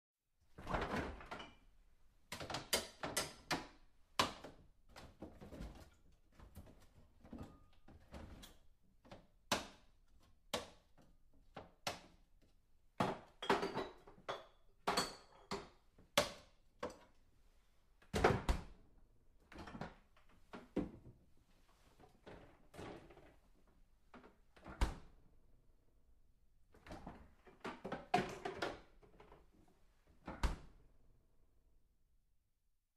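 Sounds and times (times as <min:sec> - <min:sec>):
rummaging in a refrigerator: 0:26.9 - 0:29.6.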